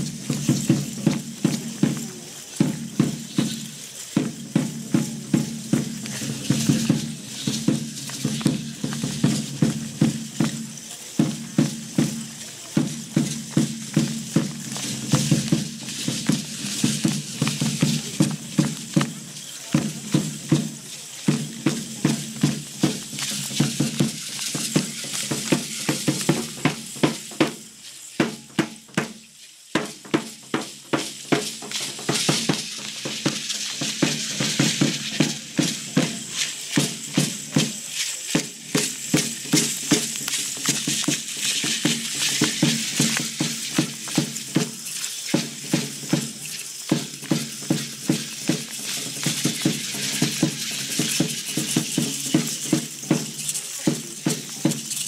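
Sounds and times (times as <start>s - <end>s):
large drum beating dance rhythm: 0.0s - 55.0s
hand rattles shaking: 30.4s - 55.0s.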